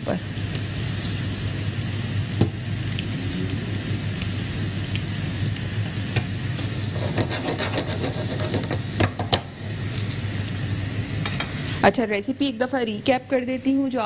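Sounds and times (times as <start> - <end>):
vegetables sizzling in oil: 0.0 - 14.0
spoon scraping pan: 6.6 - 8.9.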